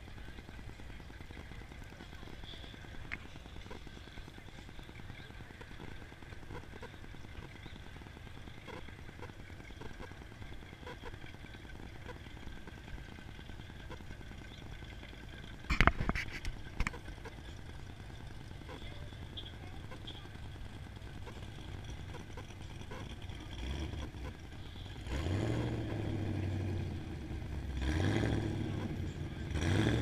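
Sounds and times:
rumble of engines and traffic: 0.0 - 30.0
faint scattered ticks: 1.4 - 11.3.

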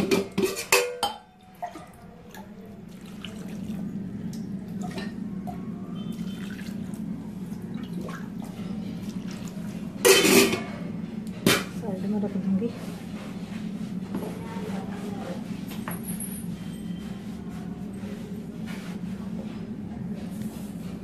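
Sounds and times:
water pouring into steel bowl: 1.4 - 5.2, 6.0 - 10.2.

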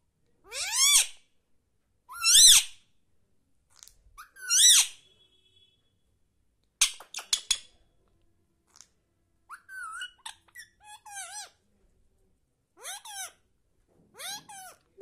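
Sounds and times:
parrot chattering calls: 0.5 - 1.2, 2.1 - 2.8, 4.2 - 5.0, 9.5 - 11.6, 12.8 - 13.4, 14.2 - 14.9.

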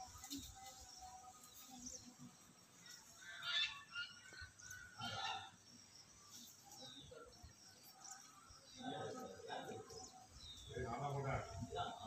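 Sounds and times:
faint bird calls: 2.8 - 5.8.

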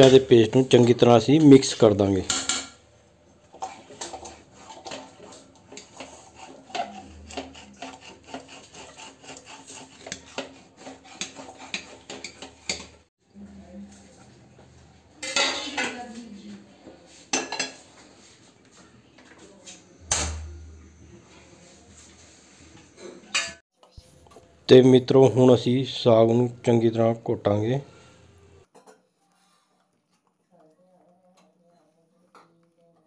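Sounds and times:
metal ladle scraping a pot: 3.5 - 13.1.

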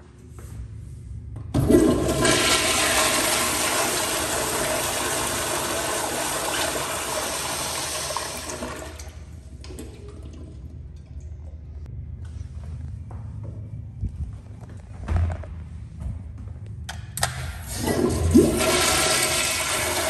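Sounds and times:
toilet flushing rush of water: 1.6 - 10.8, 17.6 - 20.0.

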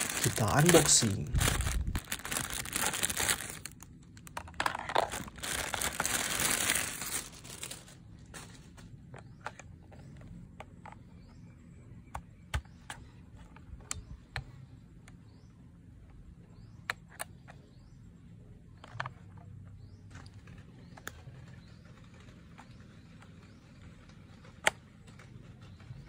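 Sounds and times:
plastic bag crinkling: 0.0 - 3.9, 4.6 - 8.8.

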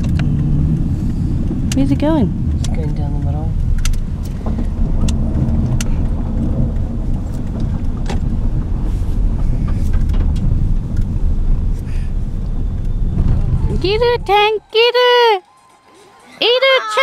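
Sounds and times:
road and engine rumble in car: 0.0 - 15.2.

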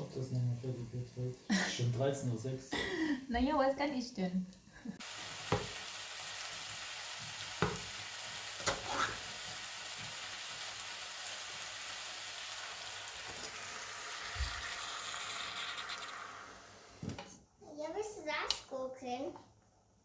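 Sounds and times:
food sizzling in a pot: 0.0 - 17.2
liquid pouring into hot pot: 11.0 - 16.8.

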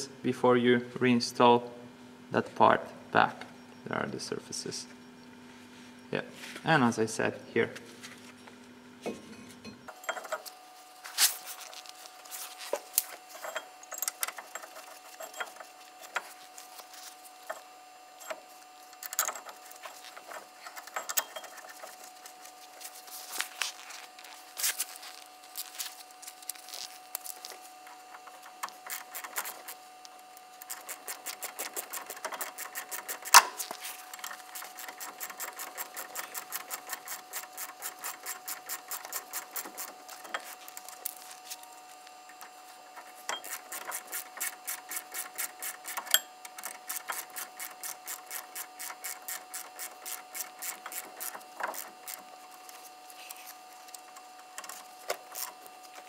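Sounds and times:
ratchet wrench clicking: 30.7 - 40.4.

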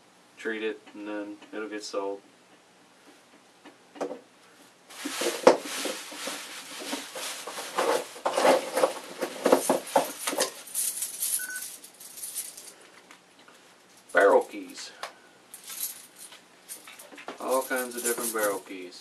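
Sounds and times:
plastic bag rustling: 4.9 - 14.2, 15.6 - 18.7
light clinks of metal items: 15.6 - 18.8.

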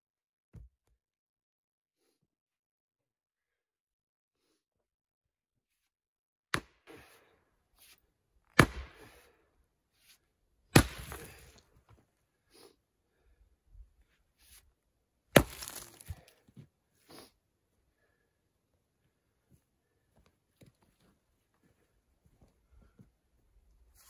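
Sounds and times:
mattock striking rocky ground: 10.8 - 12.0, 15.4 - 16.6
dirt and debris rattling: 15.4 - 16.4.

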